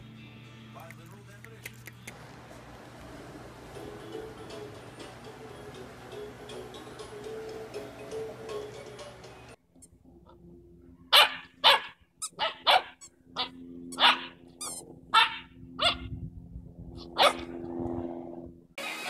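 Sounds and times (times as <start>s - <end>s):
dog barking: 11.1s - 14.4s, 15.1s - 16.1s, 17.1s - 17.5s.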